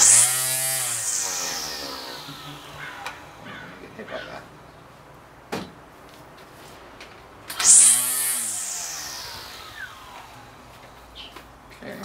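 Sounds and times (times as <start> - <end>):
string trimmer motor whirring: 0.0 - 3.6, 7.5 - 11.0.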